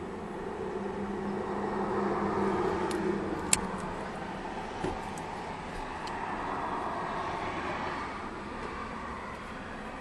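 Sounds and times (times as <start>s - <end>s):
vehicle hum inside car: 0.0s - 10.0s.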